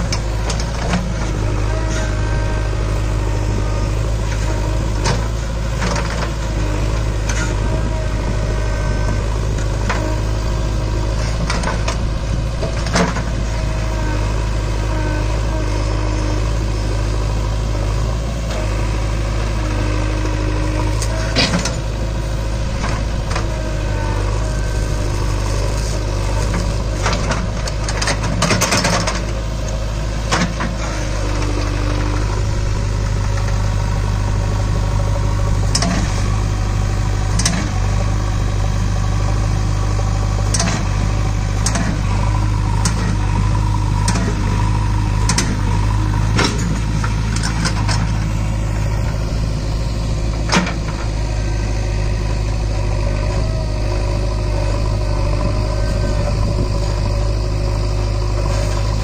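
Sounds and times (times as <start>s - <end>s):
diesel engine under load: 0.0s - 59.0s
metallic clanks from digger arm: 7.1s - 7.9s, 11.2s - 14.1s, 20.9s - 21.9s, 25.7s - 33.6s, 35.6s - 36.4s, 37.3s - 37.9s, 40.4s - 49.2s, 50.3s - 51.3s.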